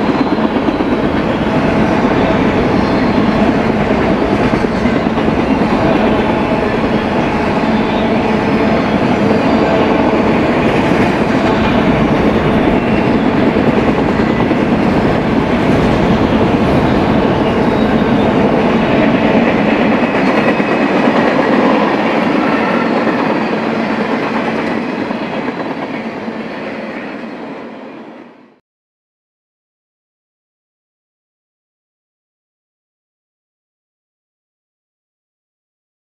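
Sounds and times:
train wheels clattering on rails: 0.0 - 27.7.

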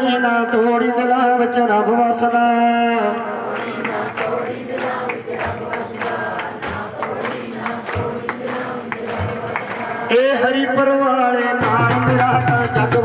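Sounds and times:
congregation singing in unison: 2.3 - 10.8
steady beat: 3.5 - 10.2, 11.6 - 13.0.

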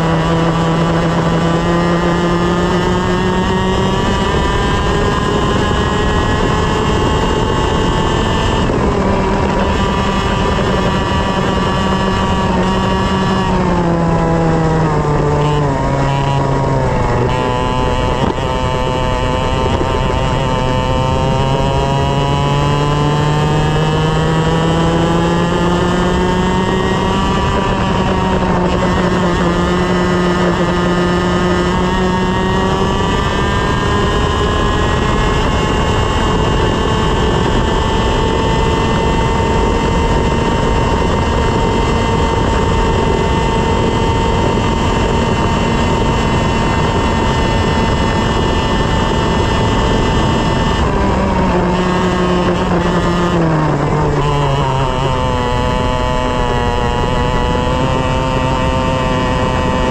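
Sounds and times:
kart engine at full throttle: 0.0 - 59.9.

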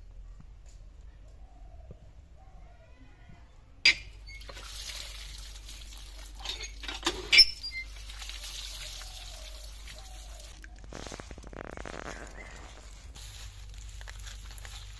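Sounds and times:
water gushing from pump spout: 4.2 - 14.9
metallic clanks from pump: 6.4 - 7.8.

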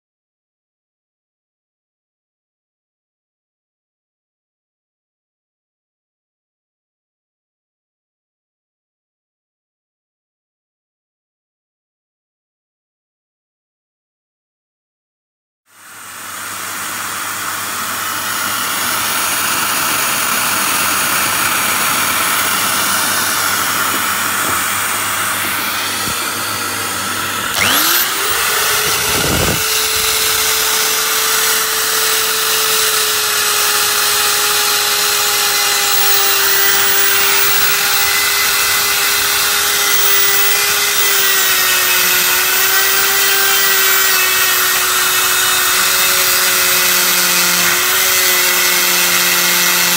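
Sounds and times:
rotary grinder on metal: 18.2 - 49.9.

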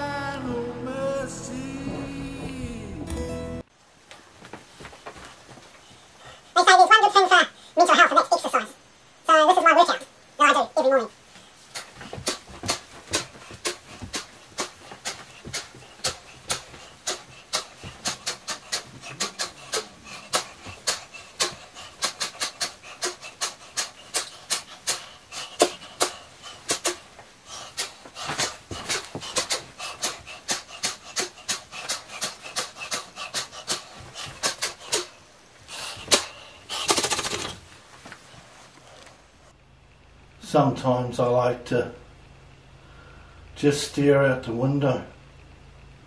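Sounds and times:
heavy panting breaths: 5.1 - 6.7, 11.2 - 37.6.

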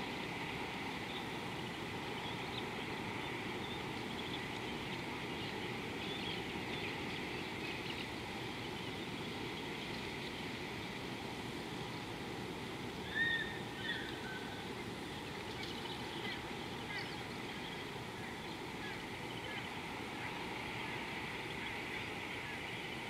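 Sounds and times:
low background hiss: 0.0 - 23.0
bird whistled call: 13.0 - 14.6
faint bird chirps: 13.0 - 14.6.

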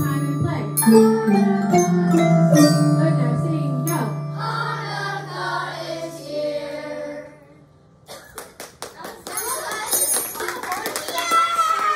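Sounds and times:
low bar note ringing: 0.0 - 5.1
mallet percussion ensemble: 0.0 - 5.4.

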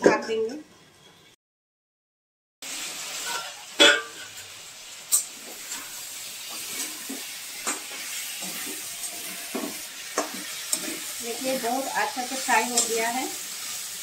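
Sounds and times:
food sizzling in pan: 2.6 - 14.0
spatula clanking on metal pan: 3.2 - 4.4, 6.5 - 11.1, 12.7 - 13.0.

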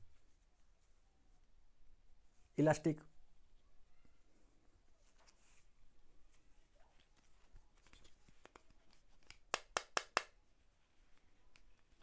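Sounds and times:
straps rustling: 4.4 - 9.5.

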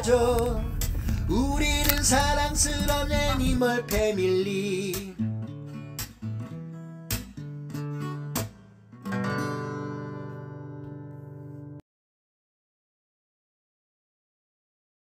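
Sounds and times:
acoustic guitar strumming chords: 0.0 - 11.8.

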